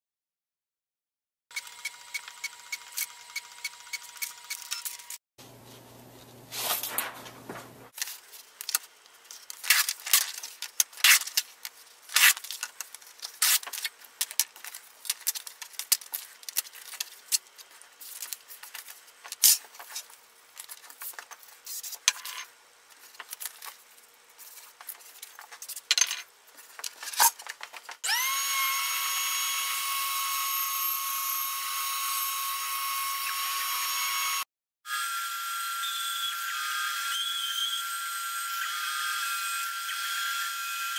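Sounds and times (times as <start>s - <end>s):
bandsaw cutting wood: 28.0s - 40.9s
power tool motor whine: 28.0s - 40.9s.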